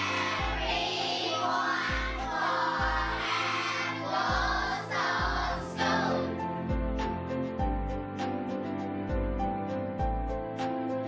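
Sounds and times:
children singing together: 0.0s - 6.4s.

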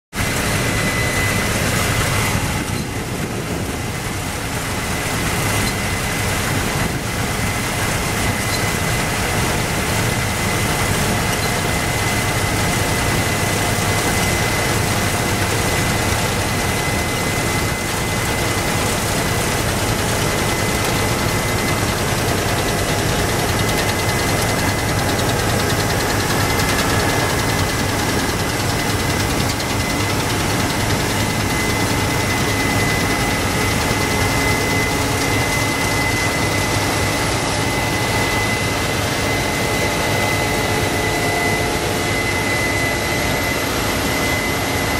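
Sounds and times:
combine harvester drone: 0.1s - 44.9s
high-pitched machine whine: 0.2s - 44.9s.

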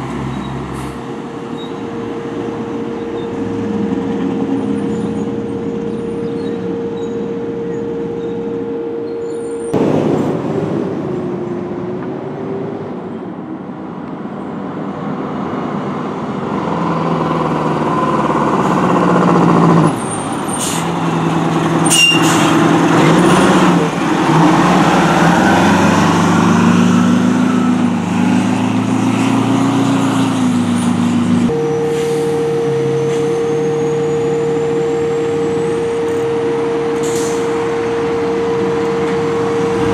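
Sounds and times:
trucks pulling away: 0.0s - 39.9s
air brake hisses: 37.0s - 37.5s.

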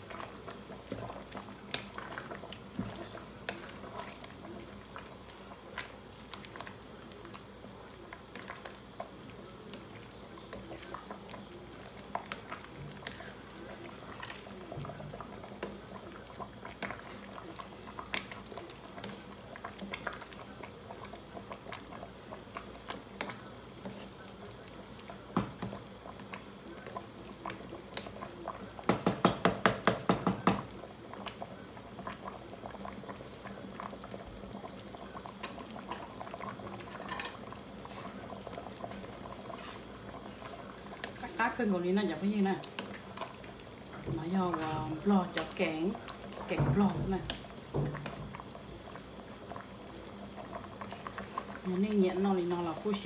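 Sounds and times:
wooden spatula stirring: 0.0s - 7.4s, 35.3s - 48.6s
soup boiling and bubbling: 0.0s - 53.0s.

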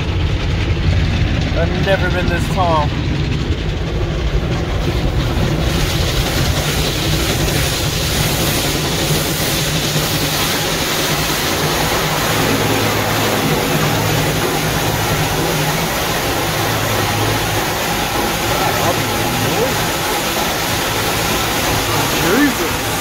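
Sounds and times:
low rumble: 0.0s - 23.0s
spinning cloth brushes: 4.8s - 23.0s
water spray: 4.8s - 23.0s.

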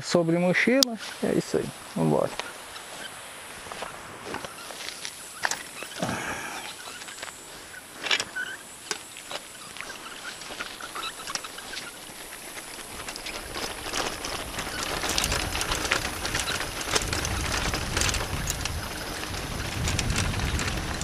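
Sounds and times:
tyres crunching on gravel: 0.9s - 21.0s
bicycle rattling: 1.0s - 21.0s
wind buffeting microphone: 9.9s - 21.0s.

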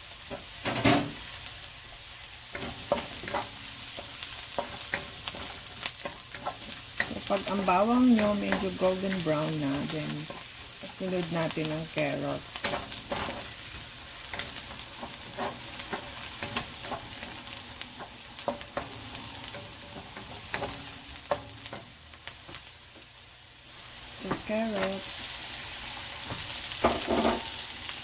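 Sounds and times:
vegetables sizzling in oil: 0.0s - 28.0s
wooden spatula scraping a wok: 11.9s - 21.9s.

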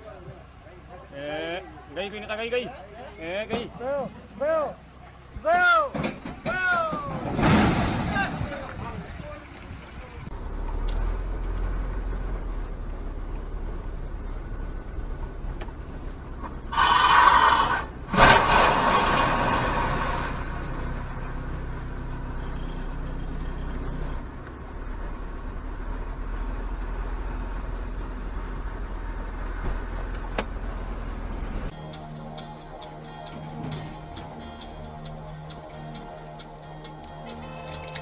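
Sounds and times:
truck grinding crash: 5.9s - 9.2s, 16.4s - 21.0s
car engine and road hum: 7.9s - 38.0s.

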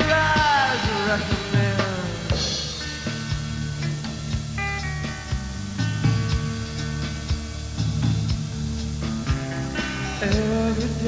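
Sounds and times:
drum strikes: 0.0s - 10.6s
bass line: 0.0s - 11.0s
electric guitar chords: 0.0s - 11.0s.

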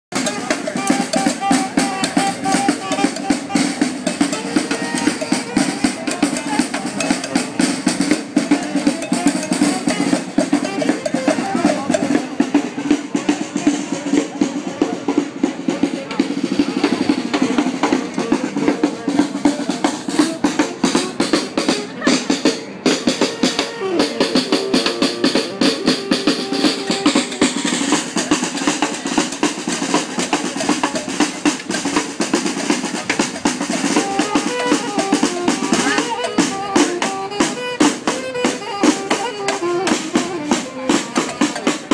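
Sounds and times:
saxophone playing: 0.1s - 7.0s, 8.4s - 12.2s, 22.8s - 28.1s, 33.8s - 41.6s
snare drum rolls: 0.1s - 41.9s.

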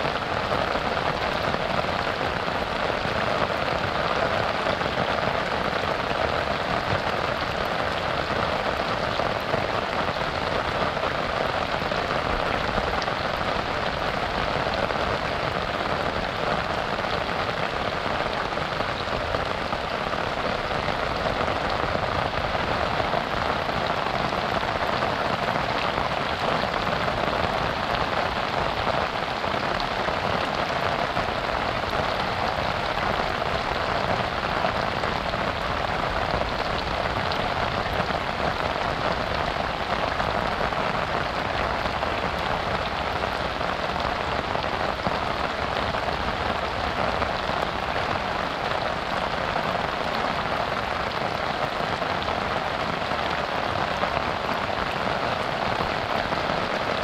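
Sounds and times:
rain falling on a river: 0.0s - 57.0s.

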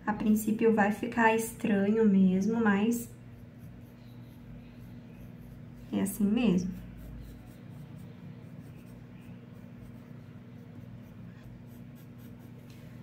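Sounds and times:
pencil scratching on paper: 2.4s - 13.0s.

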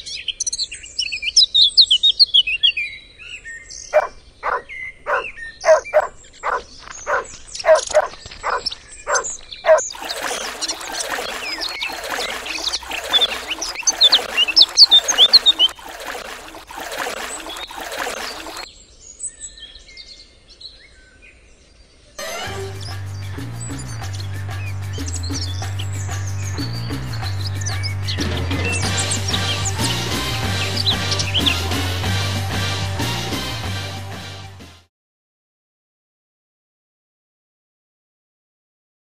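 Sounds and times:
chorus of birds chirping: 9.9s - 18.6s.

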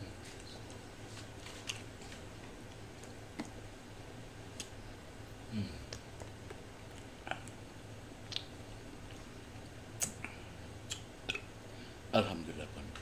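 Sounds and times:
low steady hum: 0.0s - 13.0s
lip smacks while eating: 4.5s - 4.8s, 8.2s - 11.5s.

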